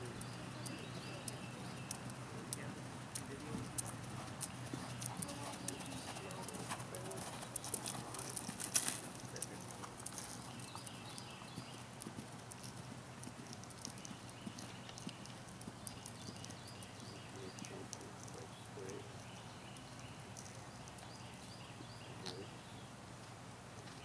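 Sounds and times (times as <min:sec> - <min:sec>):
horse hooves trotting on sand: 0:00.0 - 0:24.0.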